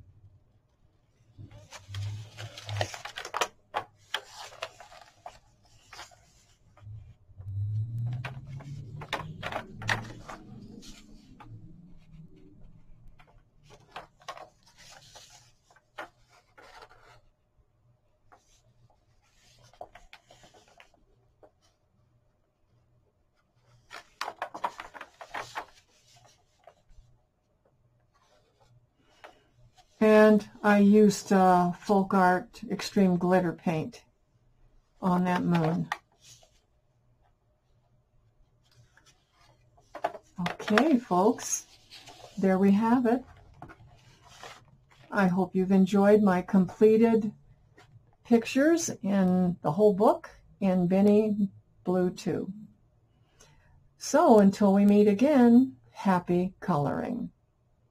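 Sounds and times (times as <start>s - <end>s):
paper pages rustling and crinkling: 1.4s - 6.9s, 8.1s - 17.3s, 18.3s - 21.8s, 23.4s - 27.2s, 28.1s - 30.4s, 35.2s - 36.8s, 38.5s - 45.2s.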